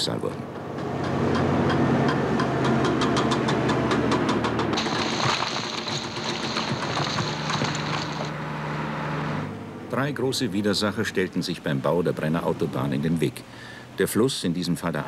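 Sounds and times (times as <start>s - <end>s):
diesel engines running: 0.8s - 9.7s
rock breaker hammering: 4.8s - 8.4s.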